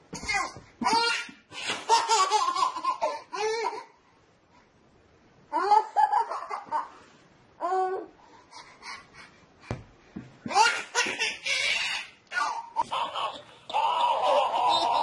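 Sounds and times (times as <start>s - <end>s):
baby laughing: 0.8s - 3.9s, 5.5s - 6.9s, 10.5s - 15.0s.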